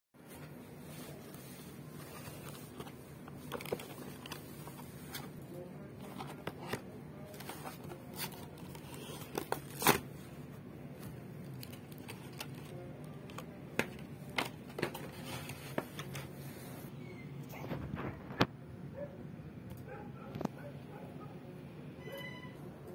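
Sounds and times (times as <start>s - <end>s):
plastic blister pack crackling: 11.4s - 16.2s.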